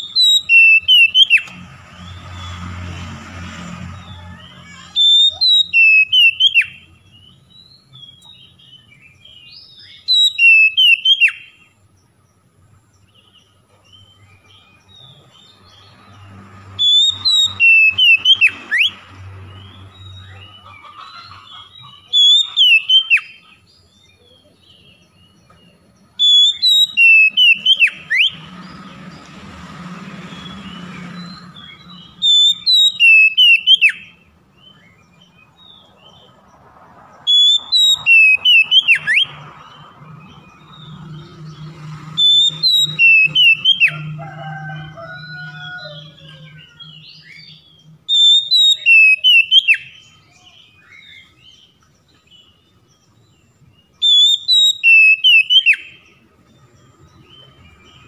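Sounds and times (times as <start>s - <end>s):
bird singing whistled phrases: 0.0s - 1.5s, 4.4s - 7.3s, 8.0s - 11.7s, 16.8s - 19.0s, 21.9s - 23.4s, 26.2s - 28.5s, 30.4s - 35.0s, 37.3s - 39.4s, 42.2s - 44.1s, 45.8s - 51.6s, 54.0s - 56.1s
soft bird twittering: 0.0s - 3.1s, 3.8s - 58.0s.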